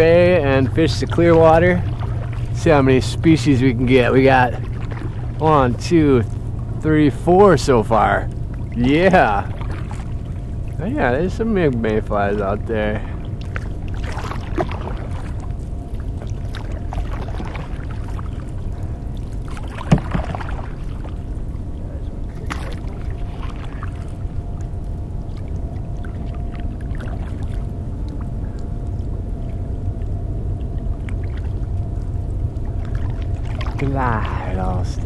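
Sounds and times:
paddle swishing through water: 0.0s - 10.8s, 12.2s - 21.5s, 22.2s - 24.2s, 25.3s - 28.9s, 32.7s - 34.4s
low rumble: 0.0s - 35.0s.

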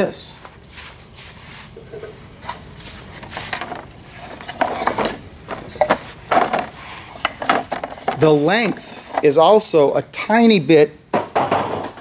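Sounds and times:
wooden frames knocking and scraping: 3.3s - 9.5s, 11.2s - 12.0s.

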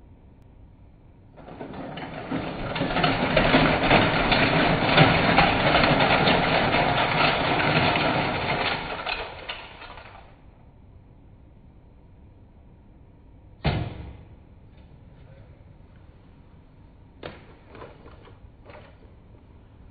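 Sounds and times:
toy cars clattering out of truck: 1.4s - 10.4s, 17.3s - 19.2s.

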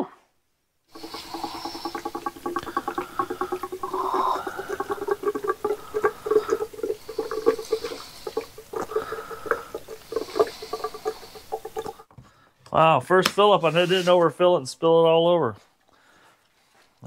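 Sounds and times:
fuel glugging into tank: 0.9s - 12.1s.

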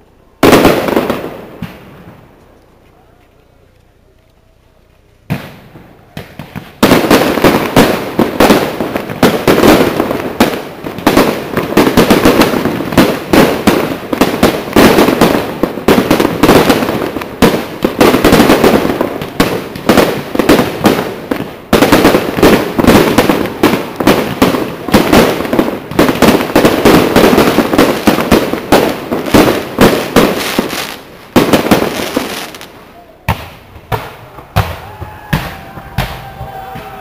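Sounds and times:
fireworks bangs and crackling: 0.0s - 37.0s.

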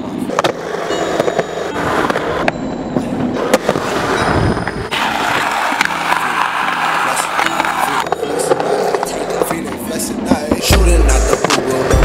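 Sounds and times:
skateboard wheels rolling on concrete: 0.0s - 12.0s
skateboard clacks: 4.9s - 12.0s.

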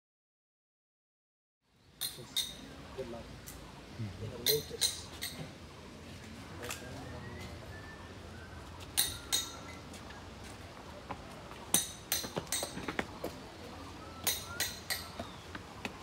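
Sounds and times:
sharp metallic clinks: 2.0s - 2.7s, 4.4s - 5.4s, 9.0s - 9.8s, 14.2s - 15.2s.

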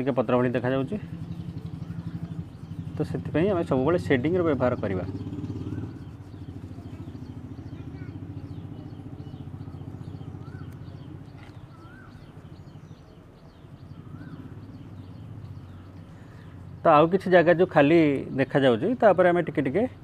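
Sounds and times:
engine idling: 0.0s - 13.0s.

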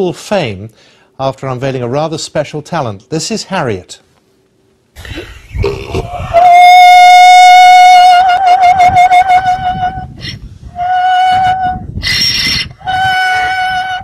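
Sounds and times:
donkey braying: 5.6s - 14.0s.

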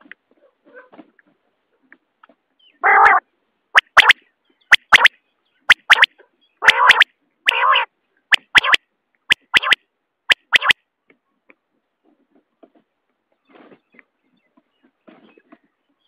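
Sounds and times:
quail calling: 2.7s - 3.2s, 3.8s - 5.1s, 5.7s - 10.8s.

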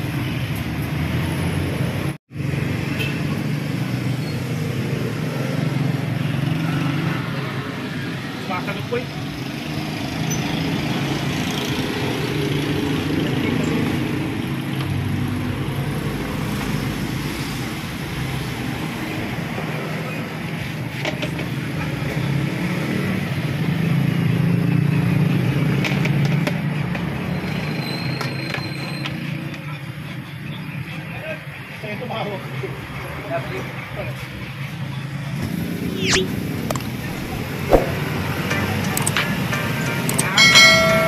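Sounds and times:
cars passing: 34.4s - 41.0s
sharp clicks: 38.9s - 39.2s, 40.1s - 40.4s.

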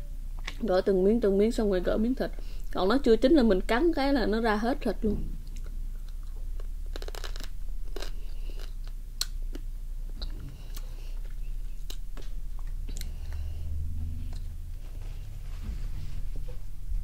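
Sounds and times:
person chewing: 5.4s - 13.6s
crab shell crunching: 5.5s - 10.9s.

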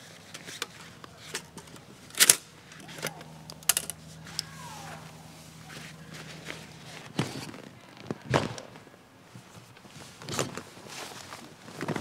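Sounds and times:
gear rustling: 0.0s - 8.3s
knocks and thuds of gear: 5.7s - 9.6s.

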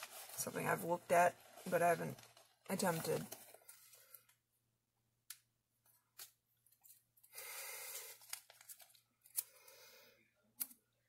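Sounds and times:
plastic bag crinkling: 0.0s - 4.2s, 7.8s - 9.4s.

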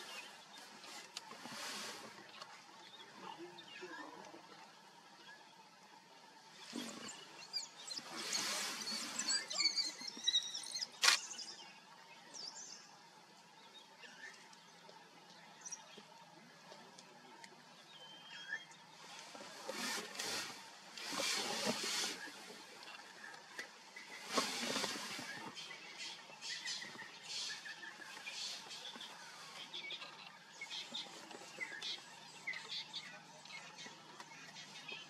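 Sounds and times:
rustling noise: 0.0s - 2.6s, 19.0s - 23.0s, 23.6s - 25.8s.

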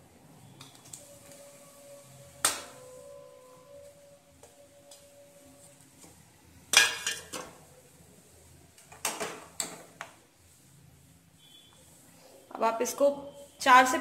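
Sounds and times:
metal utensils clattering: 6.7s - 7.6s.

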